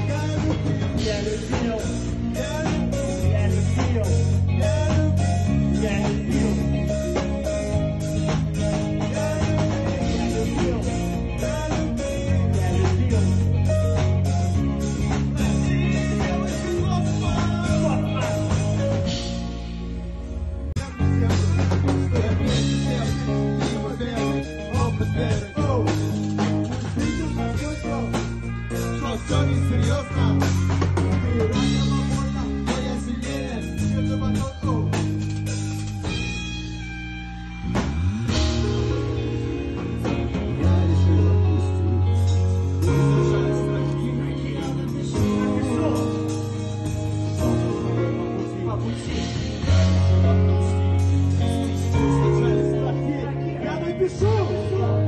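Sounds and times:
man singing into a microphone: 0.0s - 19.2s, 20.8s - 35.1s, 38.9s - 55.0s
bass guitar: 0.0s - 55.0s
drum kit beat: 0.0s - 55.0s
electric guitar: 0.0s - 55.0s.

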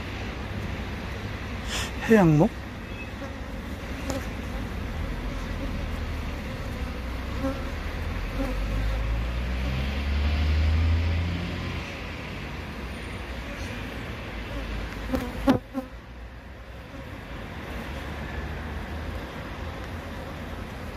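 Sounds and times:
bees buzzing: 1.7s - 9.2s.

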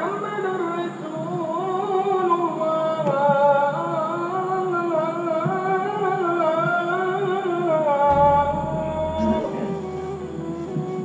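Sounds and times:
person singing long sliding notes: 8.1s - 11.0s.

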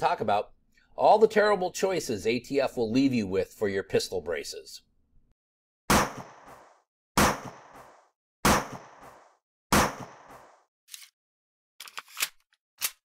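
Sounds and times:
loud sharp bangs: 5.9s - 10.5s.

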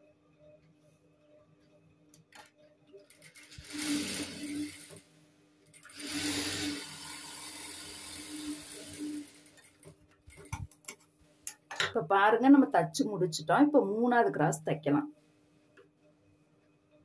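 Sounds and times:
sewing machine running: 3.0s - 5.1s, 5.7s - 9.8s.

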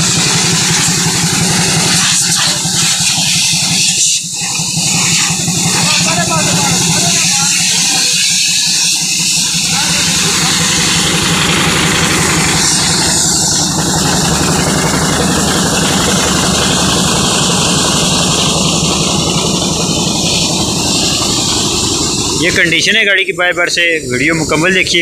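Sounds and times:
engine idling: 0.0s - 25.0s.

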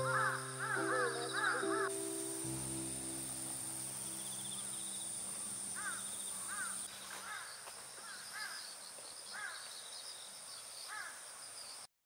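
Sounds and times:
crows cawing: 0.0s - 2.3s, 5.7s - 8.7s, 9.3s - 9.7s, 10.9s - 11.2s
high insect drone: 0.0s - 8.5s.

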